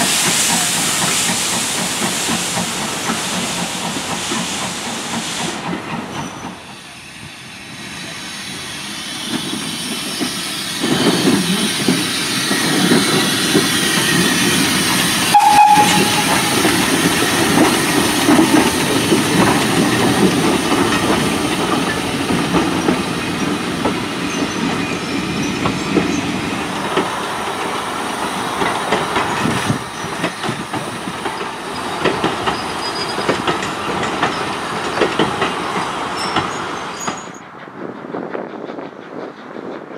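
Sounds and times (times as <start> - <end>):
steam locomotive chuffing: 0.0 - 39.9
wheels clicking over rail joints: 10.3 - 37.5
high-pitched squeak: 15.4 - 17.0.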